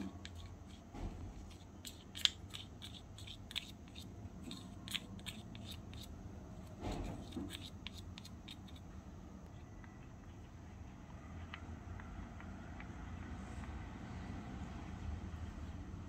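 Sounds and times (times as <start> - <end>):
metal spoon scraping plastic cup: 0.0 - 8.8.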